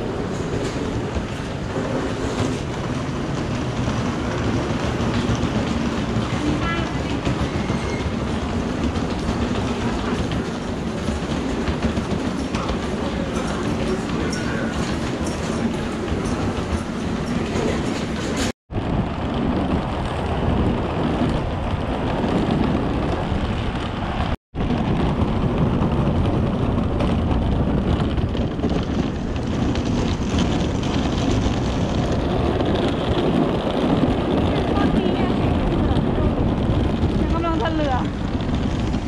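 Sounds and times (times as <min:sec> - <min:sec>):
suitcase wheels rolling and rattling: 0:00.0 - 0:39.0.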